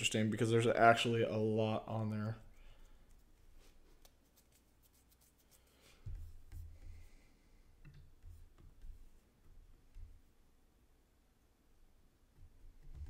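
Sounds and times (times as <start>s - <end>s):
soft thumps and rubbing: 3.1s - 10.4s.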